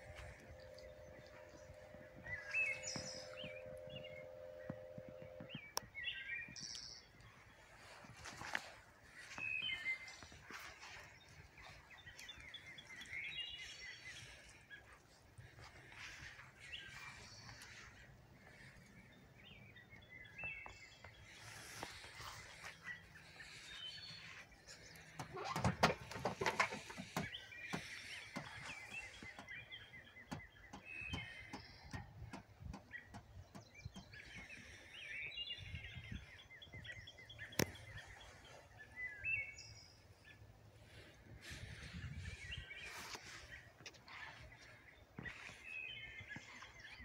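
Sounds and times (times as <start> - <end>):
small birds chirping: 0.0 - 47.0
knocks and rattles: 25.2 - 27.3.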